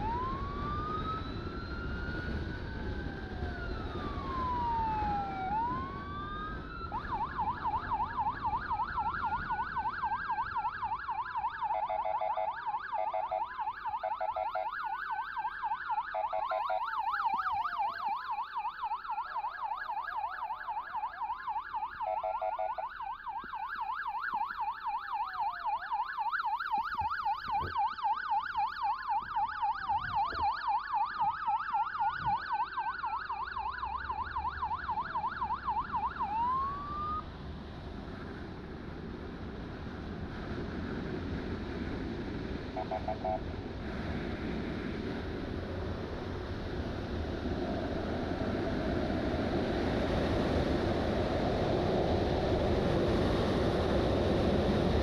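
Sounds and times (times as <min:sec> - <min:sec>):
electronic siren wailing and yelping: 0:00.0 - 0:37.2, 0:42.8 - 0:43.5.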